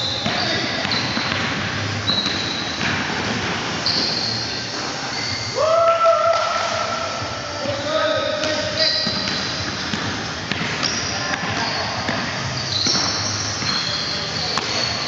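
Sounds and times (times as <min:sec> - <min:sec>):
basketball dribbling: 0:00.0 - 0:03.2, 0:08.6 - 0:15.0
sneakers squeaking on hardwood: 0:00.0 - 0:05.6, 0:08.3 - 0:15.0
players' voices: 0:05.8 - 0:12.6.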